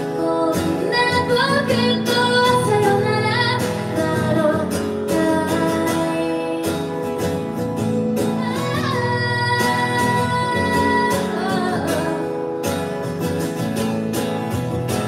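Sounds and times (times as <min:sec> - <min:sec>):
woman singing: 0:00.0 - 0:07.0, 0:08.2 - 0:12.6
strummed acoustic guitar: 0:00.0 - 0:15.0.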